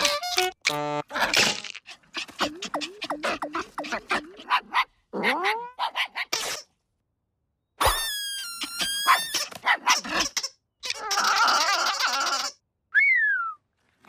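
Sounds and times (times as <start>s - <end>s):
cartoon dog yelps: 2.2s - 6.4s, 7.8s - 12.6s
cartoon dog whining cry: 7.8s - 12.6s.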